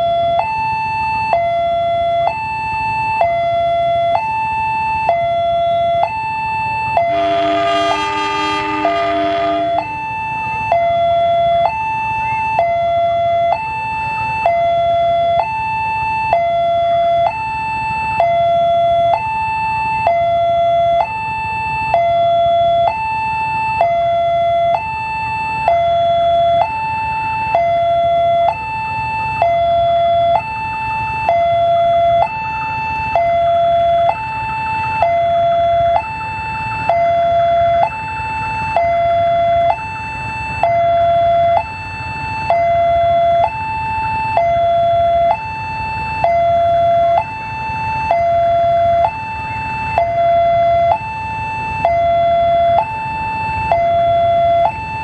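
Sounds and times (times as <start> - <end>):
level crossing alarm two-tone: 0.0 - 55.0
diesel locomotive rumble: 6.8 - 19.1.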